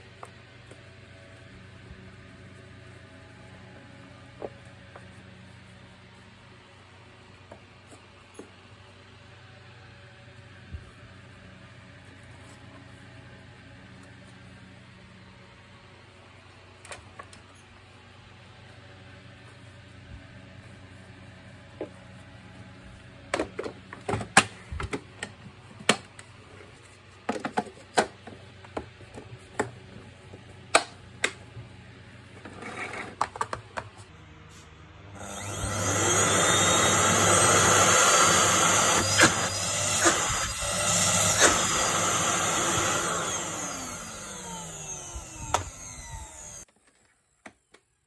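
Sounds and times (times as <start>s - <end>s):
vacuum cleaner motor whining: 34.2s - 46.7s.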